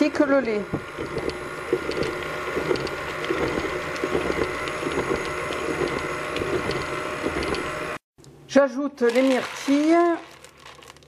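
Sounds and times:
stand mixer motor hum: 0:00.0 - 0:08.0.

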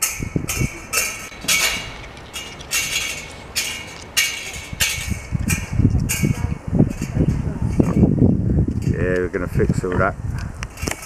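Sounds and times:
footsteps crunching on gravel: 0:00.9 - 0:05.6.

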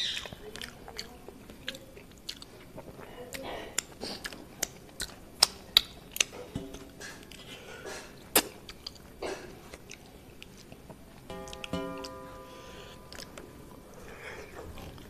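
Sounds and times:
wet mouth smacks: 0:08.3 - 0:09.1.

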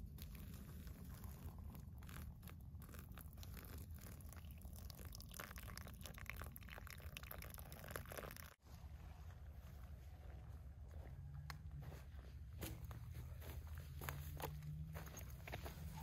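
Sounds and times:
water trickling: 0:00.2 - 0:08.6.

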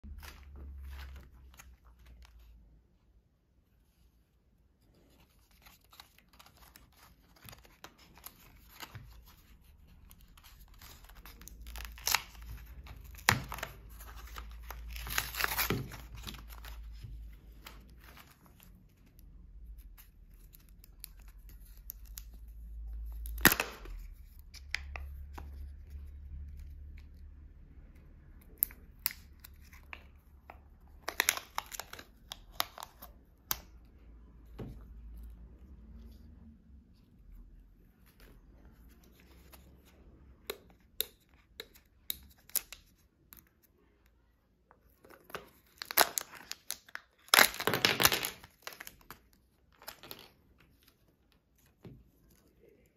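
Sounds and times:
plastic packaging rustling and tearing: 0:05.0 - 0:25.7, 0:28.6 - 0:33.5, 0:45.0 - 0:52.5.

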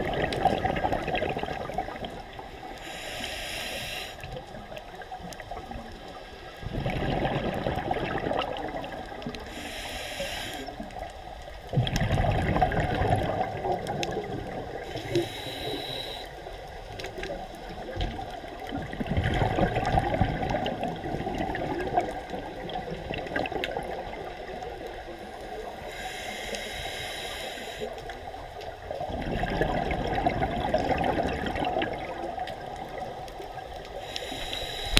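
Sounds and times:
exhaled bubbles underwater: 0:00.0 - 0:03.0, 0:04.2 - 0:09.6, 0:10.5 - 0:26.1, 0:27.8 - 0:34.9
regulator hiss: 0:02.8 - 0:04.3, 0:09.5 - 0:10.8, 0:14.8 - 0:16.4, 0:25.8 - 0:28.0, 0:34.0 - 0:34.9.

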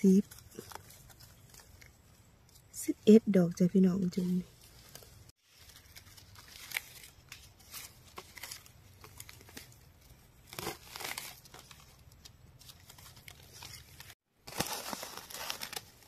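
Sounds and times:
dry leaves rustling and crackling: 0:04.5 - 0:16.0.

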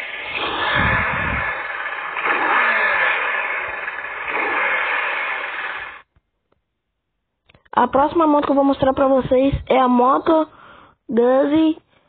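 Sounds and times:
motorcycle engine revving: 0:00.0 - 0:06.1.

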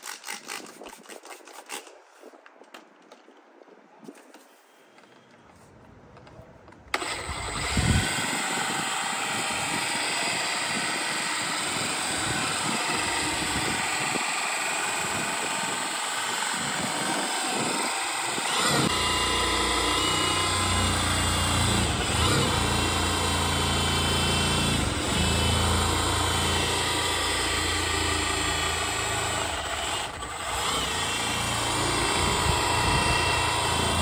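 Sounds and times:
polisher running on plastic: 0:06.9 - 0:34.0.

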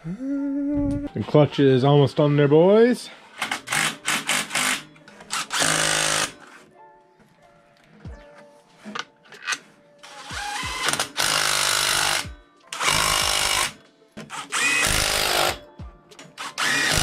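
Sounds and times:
cordless impact wrench bursts: 0:03.4 - 0:06.4, 0:10.0 - 0:12.2, 0:12.8 - 0:15.6, 0:16.4 - 0:17.0.

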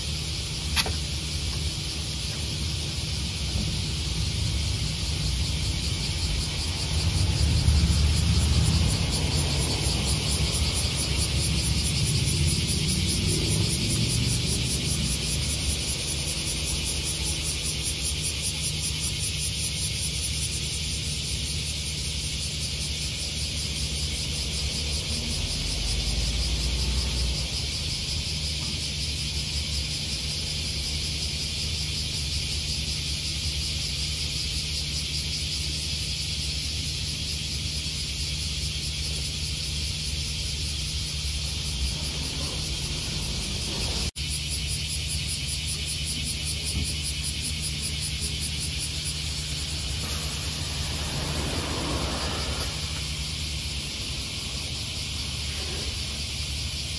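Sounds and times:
cicadas buzzing: 0:00.0 - 0:56.9
diesel bus engine idling: 0:46.4 - 0:56.3.

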